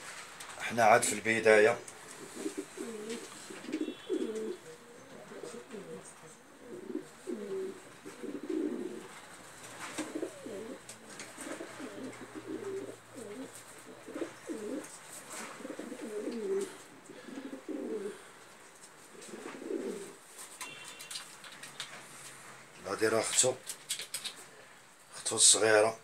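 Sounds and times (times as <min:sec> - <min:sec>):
pigeons cooing: 0:01.8 - 0:21.9.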